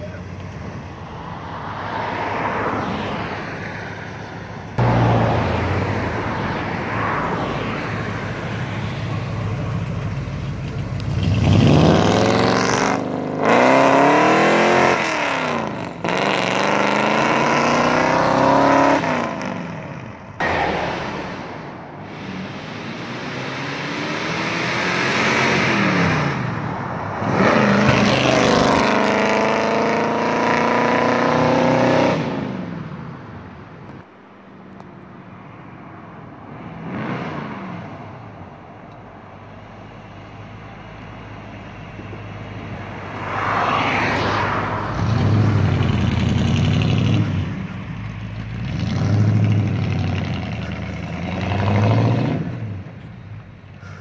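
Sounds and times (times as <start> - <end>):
truck engine accelerating: 4.6 - 32.6, 39.5 - 53.4.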